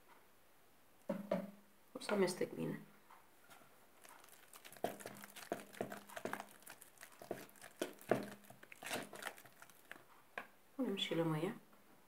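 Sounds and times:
fork clicking and scraping bowl: 0:04.1 - 0:10.0.

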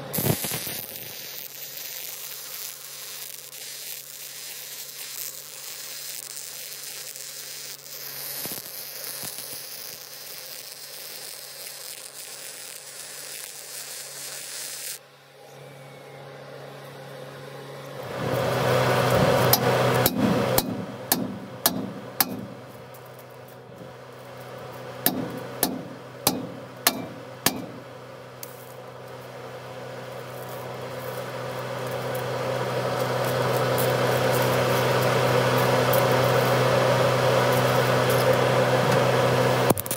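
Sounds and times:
welding arc crackling and buzzing: 0:00.0 - 0:15.1, 0:17.9 - 0:39.9
steady low hum: 0:15.0 - 0:39.7
hammer striking steel: 0:19.5 - 0:22.9, 0:25.0 - 0:28.0.

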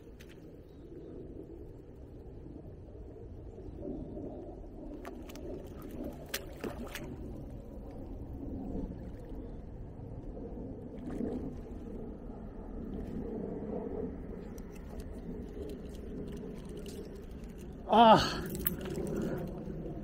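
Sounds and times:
water sloshing and lapping: 0:00.0 - 0:00.6, 0:04.9 - 0:10.2, 0:10.8 - 0:20.0.

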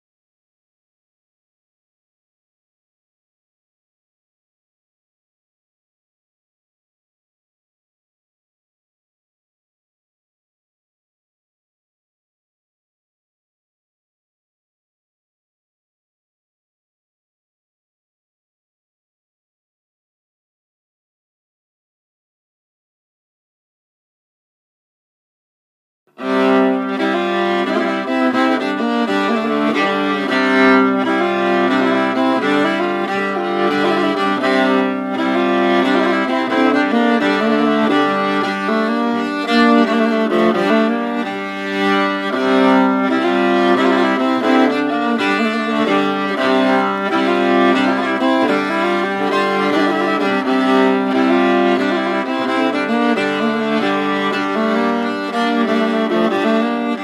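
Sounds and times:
classical string music with violin: 0:26.2 - 0:57.0.

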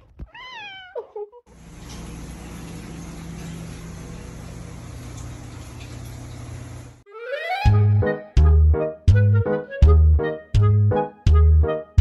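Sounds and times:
cat meowing: 0:00.2 - 0:01.1.

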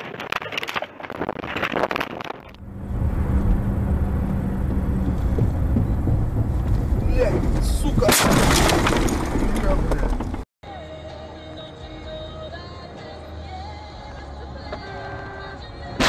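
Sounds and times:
car road and engine rumble: 0:00.0 - 0:10.5
loud car crash: 0:07.6 - 0:10.4.

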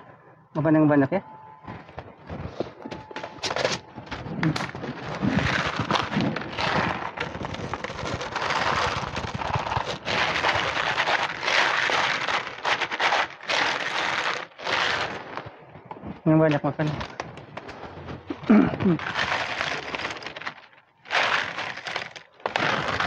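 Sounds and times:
plastic bag crinkling: 0:02.5 - 0:15.6, 0:18.8 - 0:23.0.

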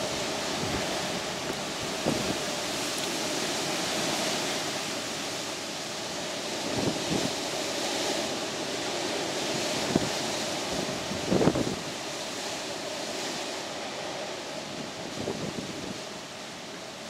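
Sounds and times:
storm wind rushing through trees: 0:00.0 - 0:17.0
wind gusts buffeting microphone: 0:00.0 - 0:17.0.

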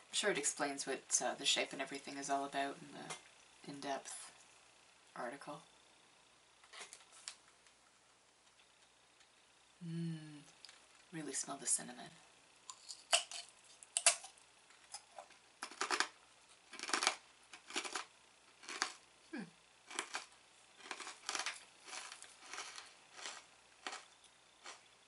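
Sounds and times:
crisp biscuit crunching: 0:12.7 - 0:19.0, 0:19.8 - 0:24.9.

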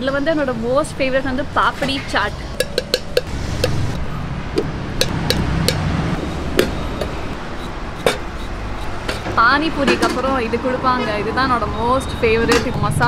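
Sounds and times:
low street rumble: 0:00.0 - 0:13.0
spoon clinking against steel mug: 0:02.6 - 0:03.8.

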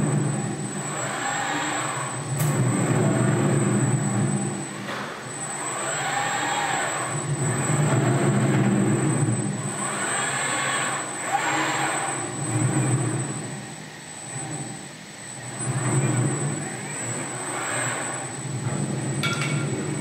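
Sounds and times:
thin steady high whine: 0:00.0 - 0:20.0
robot servo motors whining: 0:09.7 - 0:13.4.

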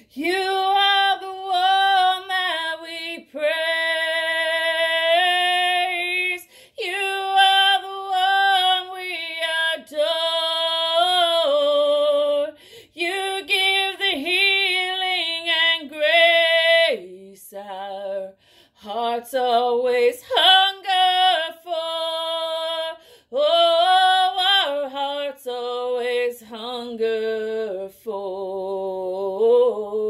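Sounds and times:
woman singing with vibrato: 0:00.0 - 0:30.0.

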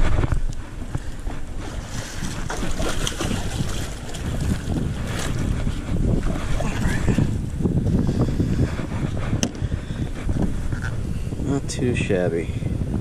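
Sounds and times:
wind buffeting microphone: 0:00.0 - 0:13.0
camera rustling and knocks: 0:08.8 - 0:11.0.

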